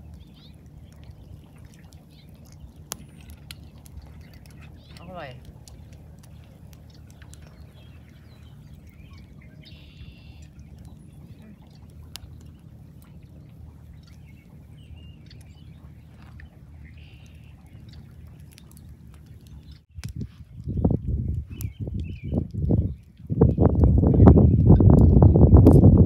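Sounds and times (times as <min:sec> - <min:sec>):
bird calls: 0:00.0 - 0:20.0
steady low rumble: 0:00.0 - 0:26.0
faint clicks: 0:00.1 - 0:09.8.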